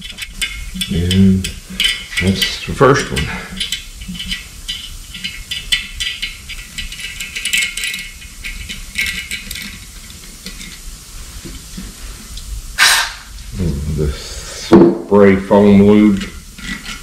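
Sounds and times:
hand tools clinking on metal: 0.0 - 10.8.

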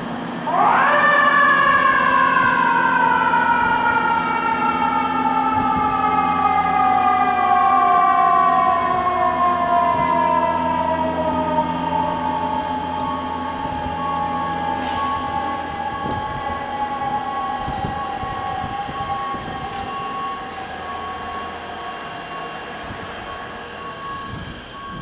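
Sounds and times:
steady low drone: 0.0 - 25.0
mechanical siren winding: 7.7 - 25.0.

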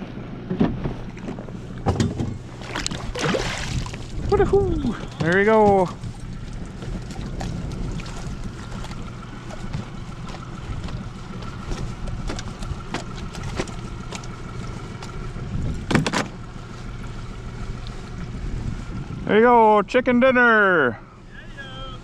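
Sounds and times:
low boat rumble: 0.0 - 22.0
wind on microphone: 2.9 - 12.9, 15.3 - 16.0, 18.1 - 19.3
knocks and clatter on deck: 9.7 - 14.3, 15.8 - 16.4.

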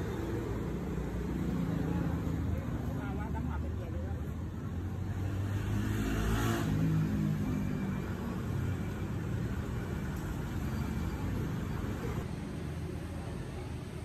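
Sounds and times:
street traffic rumbling: 0.0 - 14.0
vehicle engine passing close: 5.0 - 8.0.

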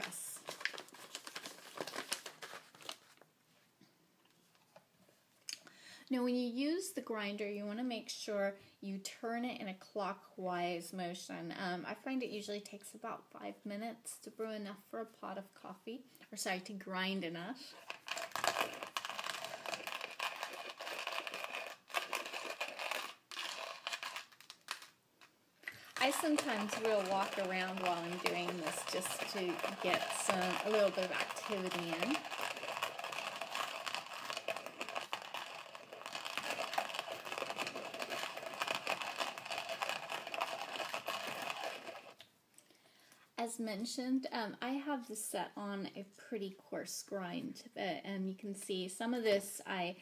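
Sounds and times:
coffee grinder crunching beans: 0.0 - 3.0, 17.6 - 25.0, 25.6 - 42.3.

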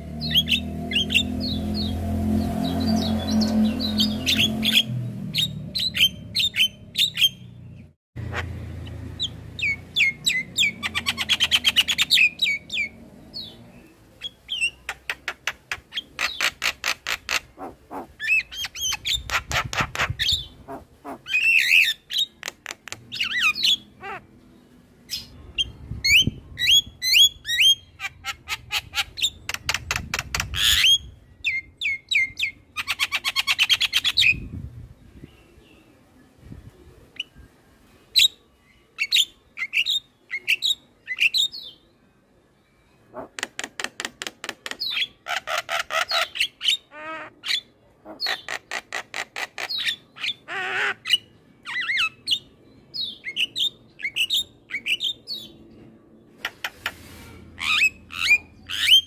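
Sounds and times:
bird chirps squawks and whistles: 0.2 - 2.0, 2.6 - 7.5, 14.2 - 22.5, 44.8 - 55.5, 57.6 - 59.0.

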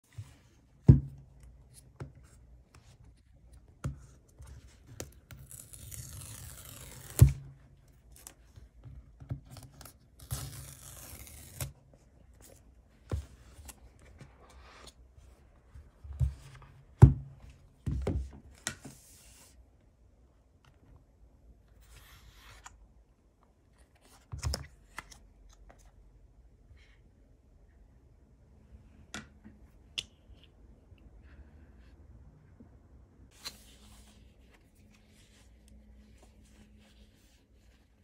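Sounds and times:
paper tear strips ripping: 5.4 - 7.3, 10.2 - 11.7.

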